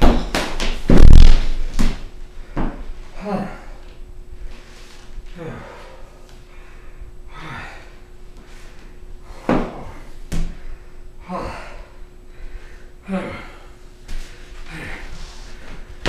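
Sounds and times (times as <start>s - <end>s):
thuds on hardwood floor: 0.0s - 2.8s
faint steady hum: 0.0s - 16.0s
person gasping and breathing hard: 5.3s - 15.9s.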